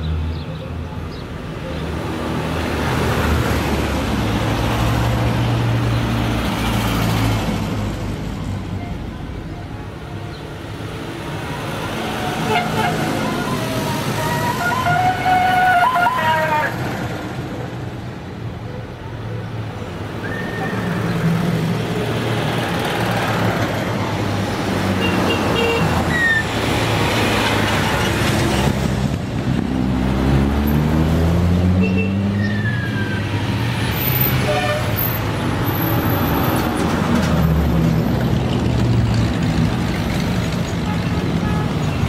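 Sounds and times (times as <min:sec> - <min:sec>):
cars and motorcycles driving past: 0:20.0 - 0:42.0.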